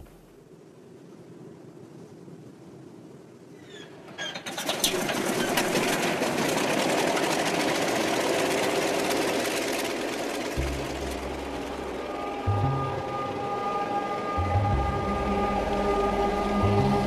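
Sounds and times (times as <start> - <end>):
radial aircraft engine starting and running: 4.2 - 17.0.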